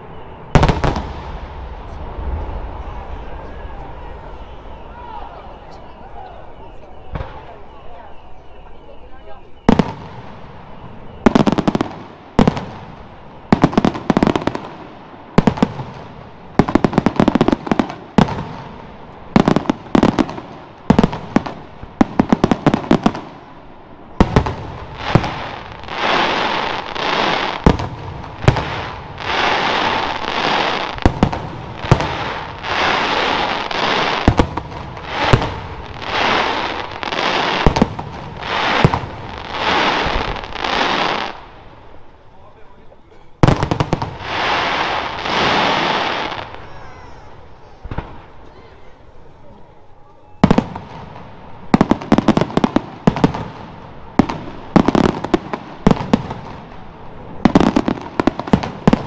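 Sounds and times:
rising and falling noisy swells: 0.0s - 6.9s.

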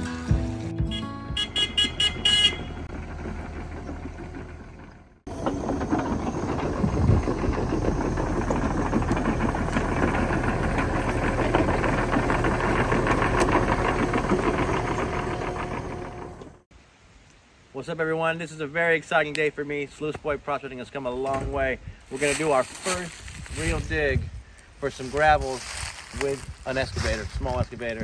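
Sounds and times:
excavator diesel engine running: 1.4s - 16.7s.

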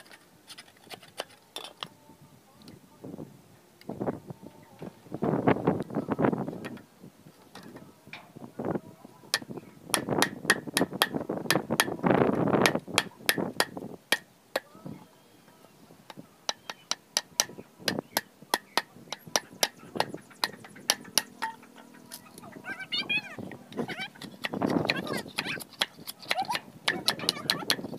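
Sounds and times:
blade scraping wood: 0.0s - 1.9s, 23.8s - 27.9s
machete chopping wood: 10.0s - 12.0s.

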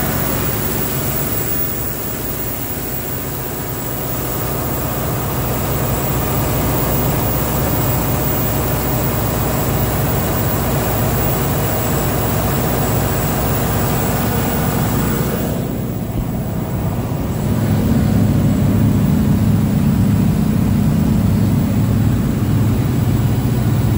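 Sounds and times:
diesel generator engine drone: 0.0s - 23.9s.

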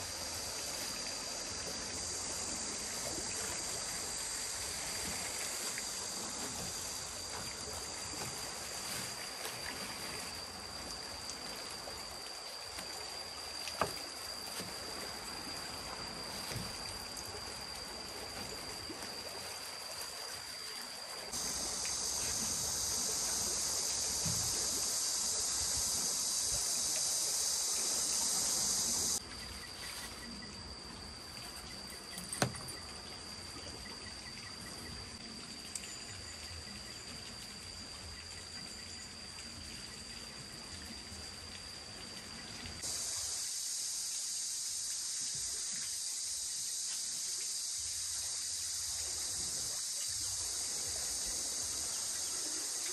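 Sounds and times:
outdoor ambient noise: 0.0s - 52.9s
thin high steady tone: 0.0s - 52.9s
loud high hiss: 21.3s - 29.2s, 42.8s - 52.9s.

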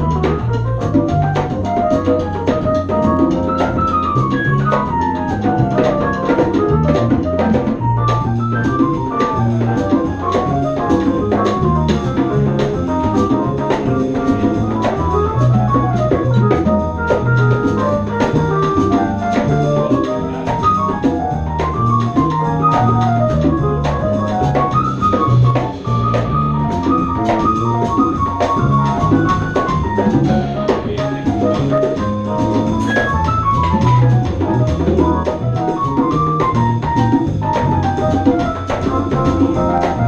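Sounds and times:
live instrumental band playing: 0.0s - 40.0s.

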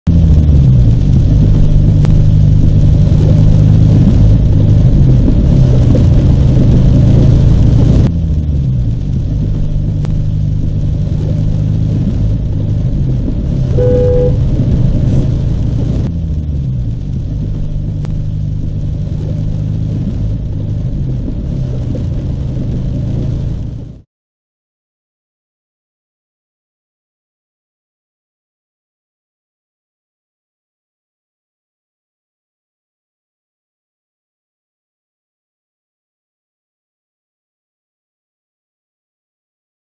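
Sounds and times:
car engine and road noise: 0.1s - 24.0s
car horn toot: 13.8s - 14.6s.

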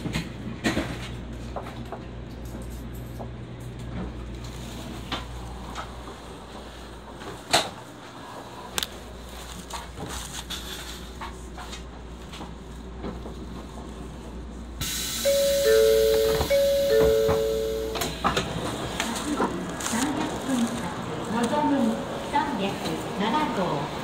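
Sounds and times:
muffled station rumble: 0.0s - 24.0s
electronic two-tone chime: 15.2s - 18.1s
platform noise: 15.2s - 18.4s.

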